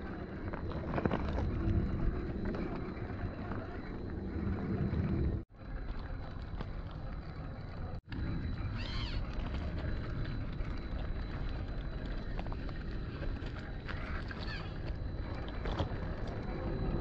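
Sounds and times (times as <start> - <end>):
wind rumbling on microphone: 0.0 - 17.0
rock crunching under tyres: 0.1 - 3.6.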